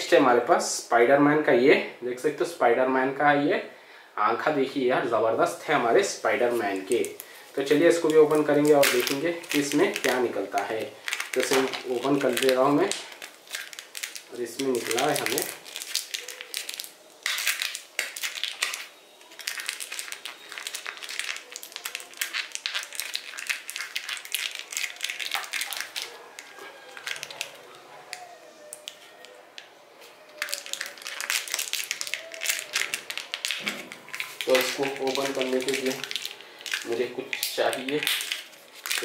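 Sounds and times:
plastic wrapper crinkling: 0:05.6 - 0:39.0.

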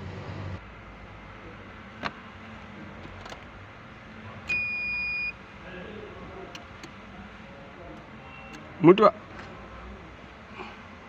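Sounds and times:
car dashboard warning beep: 0:04.5 - 0:05.4.

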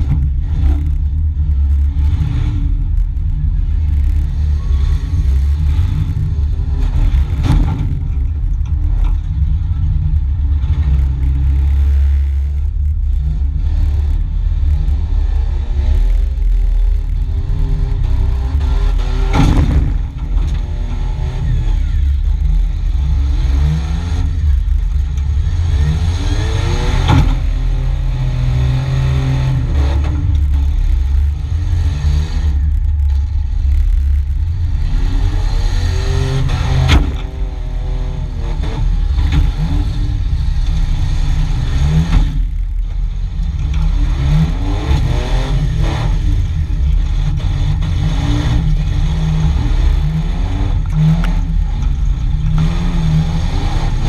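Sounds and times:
engine revving: 0:00.0 - 0:54.0.

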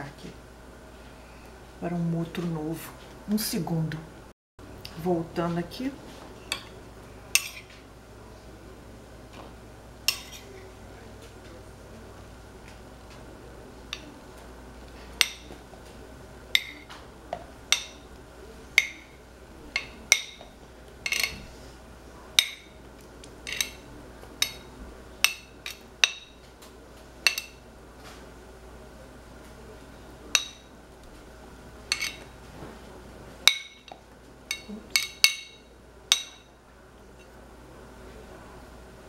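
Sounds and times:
spoon clinking against dish and cups: 0:06.4 - 0:06.8, 0:07.4 - 0:07.7, 0:10.1 - 0:10.6, 0:15.1 - 0:15.6, 0:16.5 - 0:18.1, 0:18.8 - 0:21.4, 0:22.4 - 0:22.8, 0:23.4 - 0:26.4, 0:27.2 - 0:27.6, 0:30.3 - 0:30.7, 0:31.9 - 0:32.3, 0:33.4 - 0:36.5.

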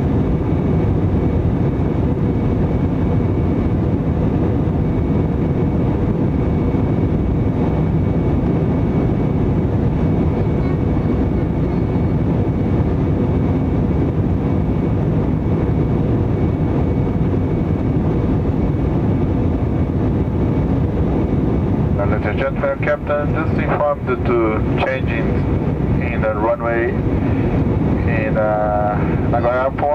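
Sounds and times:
engine and airflow rumble: 0:00.0 - 0:29.9
faint steady whine: 0:00.0 - 0:29.9.

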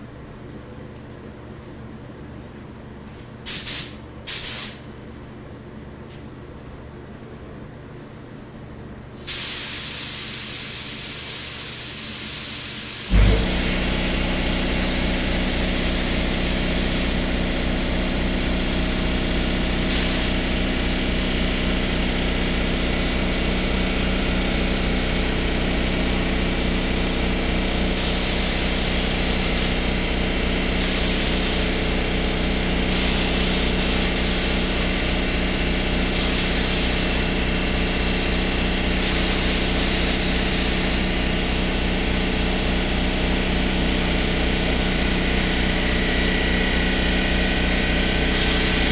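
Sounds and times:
paint spray gun hissing: 0:03.5 - 0:04.8, 0:09.3 - 0:17.3, 0:19.9 - 0:20.5, 0:28.0 - 0:29.8, 0:30.8 - 0:31.8, 0:32.9 - 0:35.3, 0:36.1 - 0:37.4, 0:39.0 - 0:41.2, 0:48.3 - 0:48.9
air compressor humming: 0:09.0 - 0:48.9.

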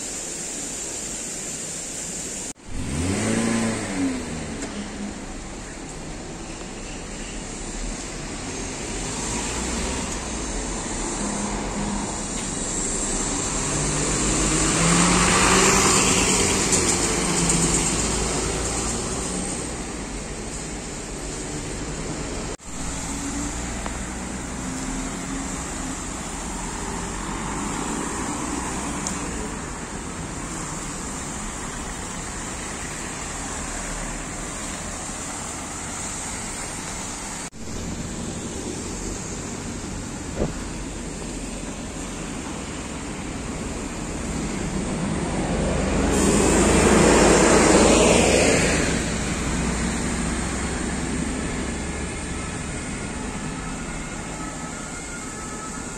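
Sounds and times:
road traffic hum: 0:00.0 - 0:55.9
vehicle passing close: 0:44.0 - 0:52.7.

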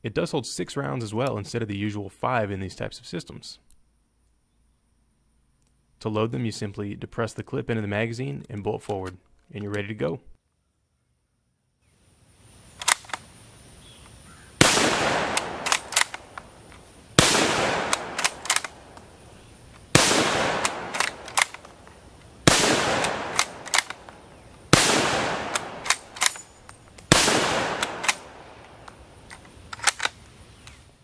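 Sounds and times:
rifle bolt metallic clacks: 0:12.8 - 0:13.2, 0:14.8 - 0:19.1, 0:19.7 - 0:30.8
rifle shots echoing: 0:14.6 - 0:21.8, 0:22.4 - 0:29.2.

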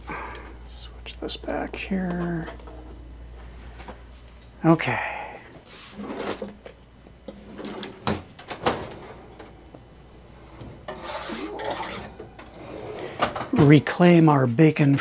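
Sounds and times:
scraping rustle: 0:10.9 - 0:12.9.

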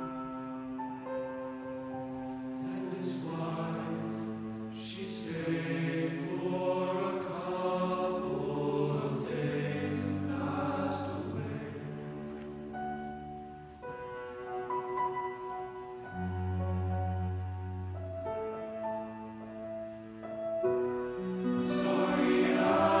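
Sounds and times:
piano accompaniment: 0:00.0 - 0:23.0
men's choir singing: 0:02.7 - 0:12.2, 0:21.3 - 0:23.0.

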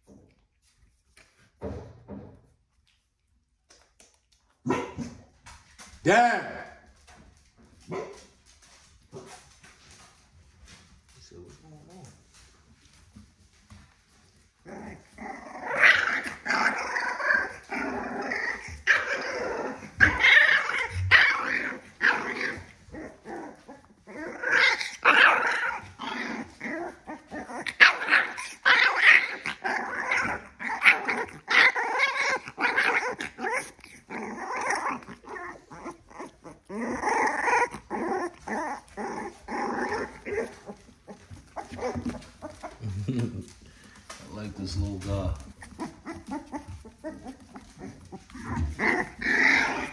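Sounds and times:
puppies growling and yipping: 0:14.0 - 0:44.2, 0:45.4 - 0:49.9.

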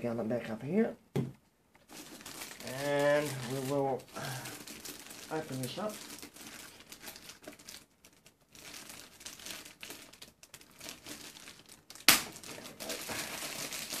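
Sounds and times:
plastic bag crinkling: 0:01.8 - 0:14.0
sharp loud snap: 0:12.1 - 0:12.4.

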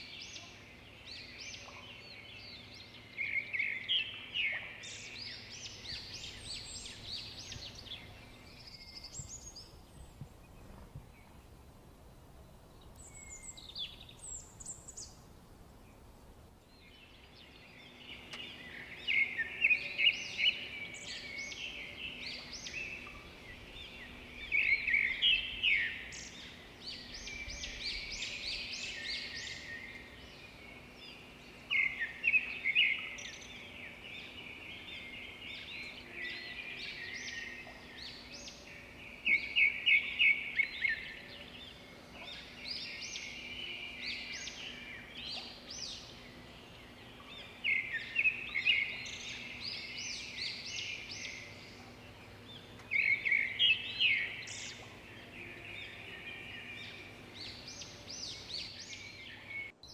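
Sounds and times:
songbirds chirping: 0:00.0 - 0:59.9.

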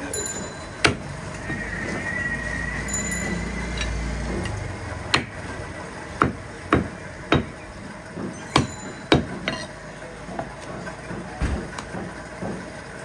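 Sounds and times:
cleaver chopping meat on wood: 0:00.8 - 0:01.6, 0:04.4 - 0:05.4, 0:06.2 - 0:07.6, 0:08.2 - 0:09.6.

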